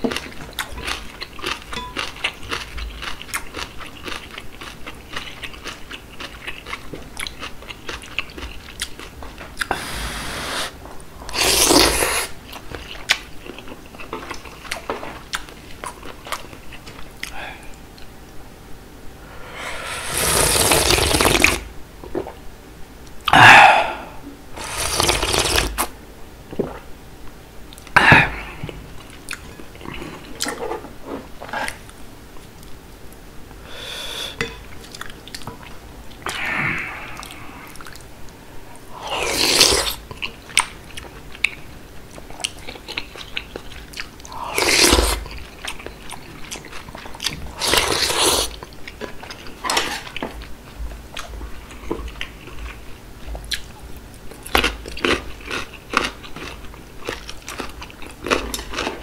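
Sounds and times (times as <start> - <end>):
chewing with wet mouth clicks: 0.1 - 9.7, 34.8 - 36.2, 37.2 - 38.1, 40.1 - 44.4, 51.1 - 59.0
slurping broth: 9.7 - 12.4, 19.4 - 21.6, 24.6 - 25.9, 39.0 - 40.0, 44.4 - 45.2, 47.5 - 48.6.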